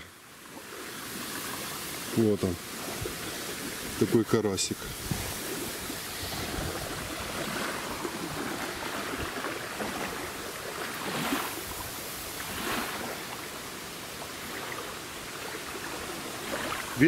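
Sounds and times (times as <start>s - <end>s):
river water lapping at bank: 0.0s - 17.0s
wind rushing: 2.9s - 9.3s.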